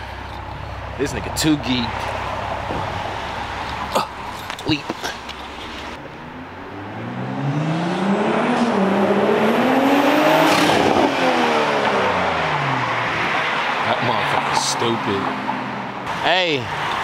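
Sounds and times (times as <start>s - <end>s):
car engine accelerating past: 6.2s - 14.6s.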